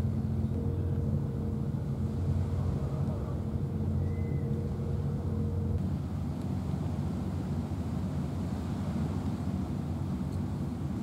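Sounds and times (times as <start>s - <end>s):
engine droning: 0.0s - 11.0s
faint steady hum: 0.0s - 11.0s.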